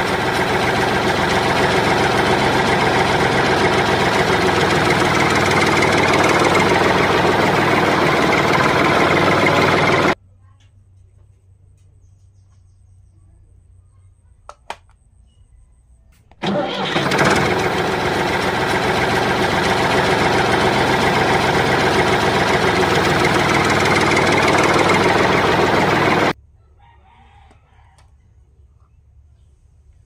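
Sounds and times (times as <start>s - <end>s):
diesel engine running: 0.0s - 10.2s, 16.3s - 26.4s.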